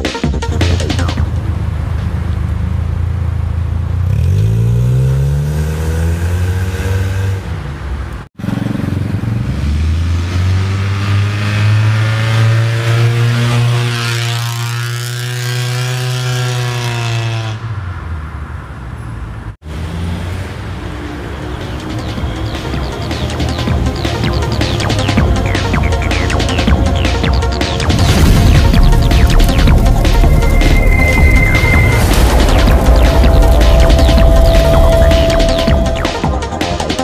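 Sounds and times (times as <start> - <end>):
car engine revving and accelerating: 1.2 - 18.1.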